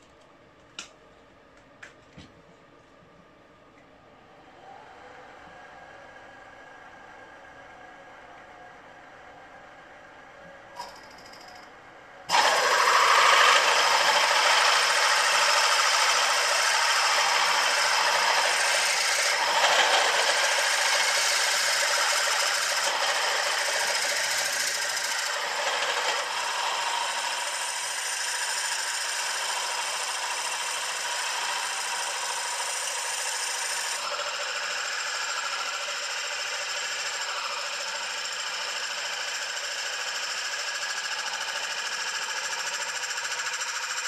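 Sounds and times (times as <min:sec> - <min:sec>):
milling machine cutting metal: 0:12.3 - 0:44.0.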